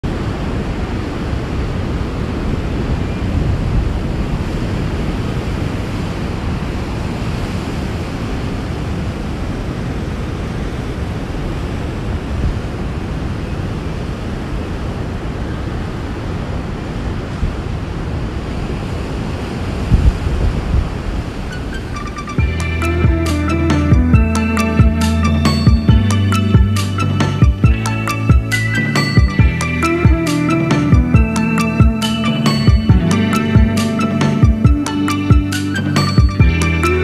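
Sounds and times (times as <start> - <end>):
wind rumbling on microphone: 0.0 - 28.5
ocean surf breaking: 0.0 - 37.0.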